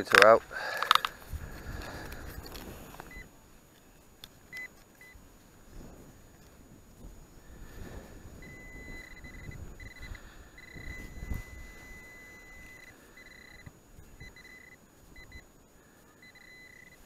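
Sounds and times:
metal detector pinpointer beeping: 3.0 - 3.3, 4.5 - 5.2, 8.4 - 15.5, 16.2 - 17.0.

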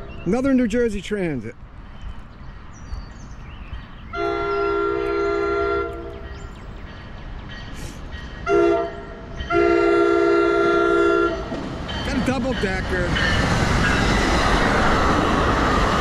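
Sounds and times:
train air horn blasts: 4.1 - 6.3, 7.8 - 11.5.

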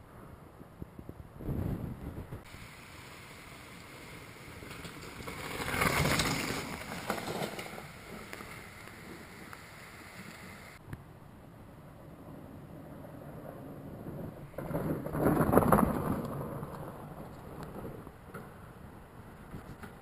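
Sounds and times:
wind rushing on microphone: 0.0 - 10.8
bike riding noise: 0.1 - 10.8, 12.7 - 20.0.

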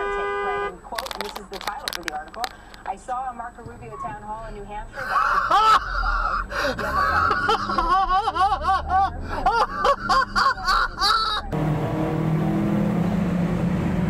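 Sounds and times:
car driving hum: 0.0 - 14.0
person laughing hard: 5.0 - 11.5.

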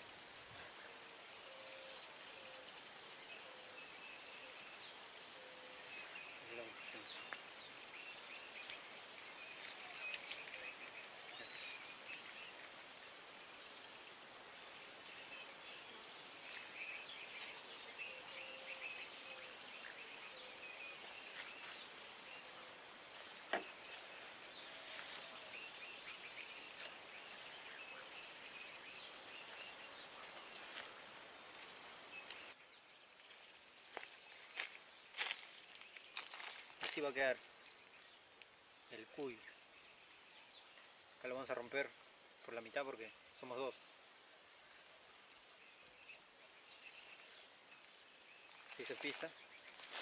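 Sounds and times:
bird chirps: 0.0 - 13.8, 14.4 - 44.0, 44.6 - 50.0
high-pitched insect hiss: 5.7 - 32.6, 44.5 - 50.0.

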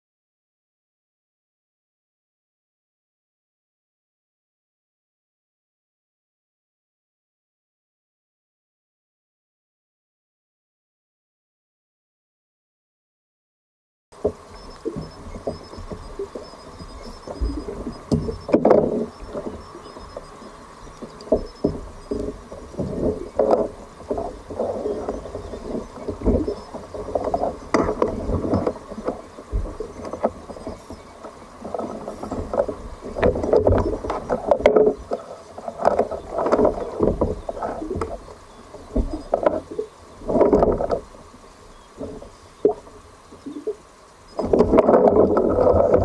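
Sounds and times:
water splashing against kayak: 14.2 - 46.0.

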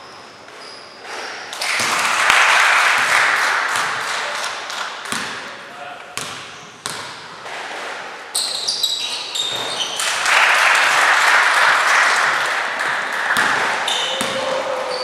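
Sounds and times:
sneakers squeaking on court: 0.0 - 1.5, 8.3 - 10.1, 13.4 - 15.0
basketball bouncing: 3.0 - 4.0, 5.1 - 5.5, 6.2 - 7.9, 12.8 - 14.6.

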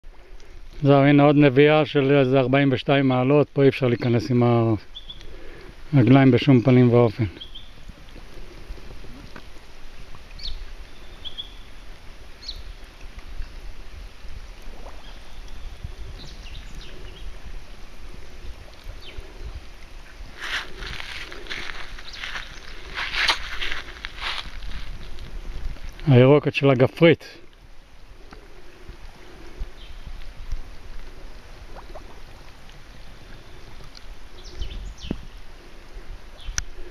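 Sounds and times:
birds chirping: 3.8 - 7.8, 10.4 - 11.8, 12.4 - 12.8, 15.0 - 17.4, 20.5 - 24.5, 28.4 - 30.2, 34.3 - 35.4
wind rumbling on microphone: 4.9 - 26.5, 27.4 - 36.9.

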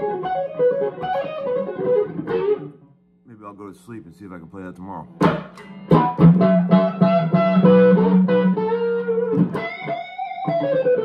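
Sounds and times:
electric guitar through amplifier: 5.0 - 11.0.

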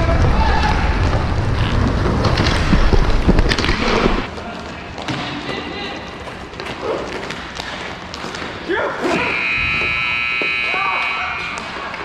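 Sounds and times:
hockey sticks and puck clacking: 0.0 - 9.2.

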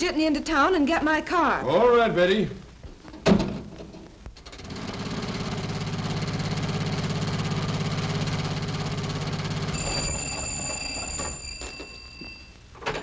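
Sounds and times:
telephone ringing: 9.3 - 13.0.

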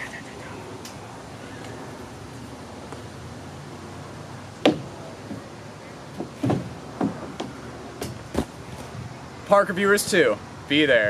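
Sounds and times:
knocks: 4.6 - 4.9, 6.2 - 8.5.

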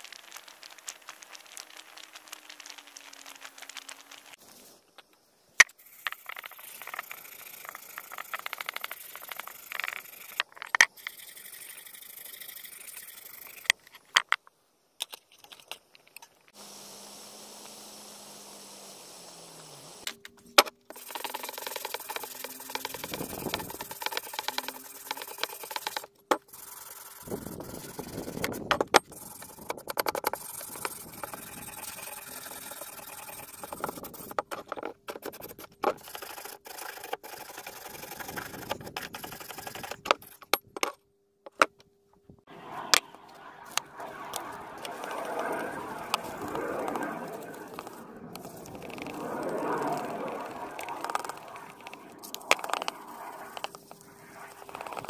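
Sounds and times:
wire brush scrubbing metal: 30.3 - 34.4.

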